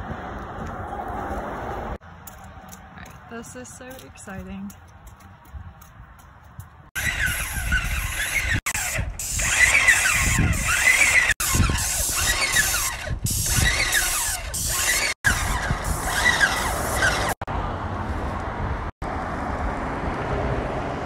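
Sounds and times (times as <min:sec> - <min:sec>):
paint sprayer motor whine: 0:07.0 - 0:17.4
hiss of paint spraying: 0:09.2 - 0:09.7.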